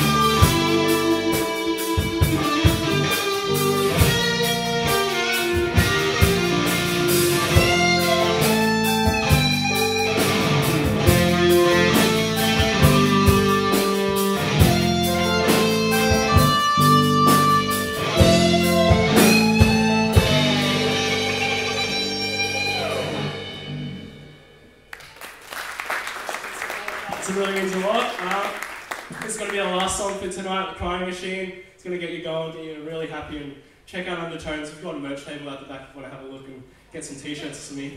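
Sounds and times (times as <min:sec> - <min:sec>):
drum kit: 0:00.0 - 0:24.5
electric guitar: 0:00.0 - 0:24.5
keyboard: 0:00.0 - 0:24.5
bass guitar: 0:00.0 - 0:24.8.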